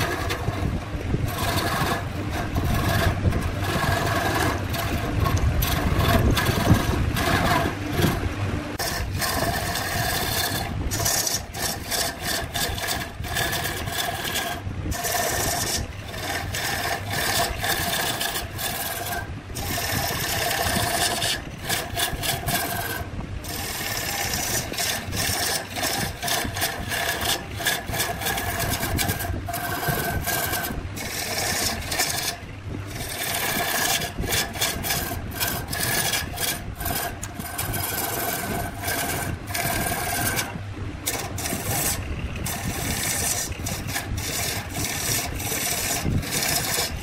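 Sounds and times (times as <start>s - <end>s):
lathe tool scraping wood: 0.0s - 47.0s.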